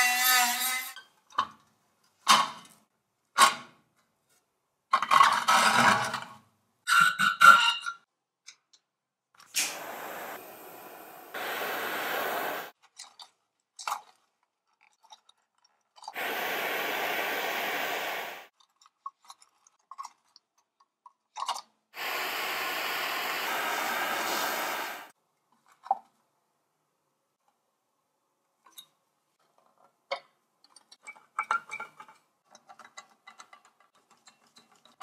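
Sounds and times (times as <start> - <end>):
butane torch hissing: 9.6 - 12.7, 16.2 - 18.5, 22.0 - 25.1.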